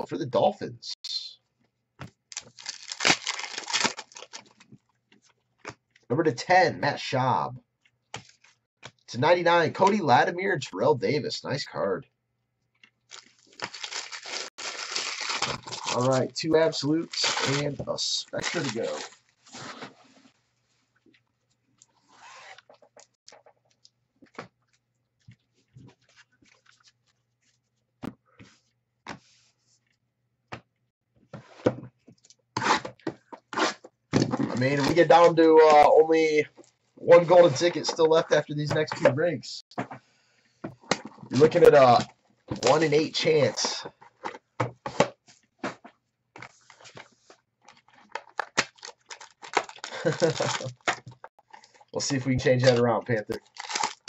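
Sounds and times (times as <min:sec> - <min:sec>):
cards rustling: 0:02.3 - 0:04.6, 0:13.1 - 0:19.2, 0:46.4 - 0:54.0.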